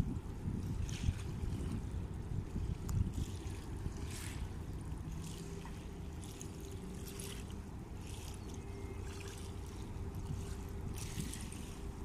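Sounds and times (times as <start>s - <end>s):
faint steady hum: 0.0s - 12.0s
low steady rumble: 0.0s - 12.0s
river water lapping at bank: 0.0s - 12.0s.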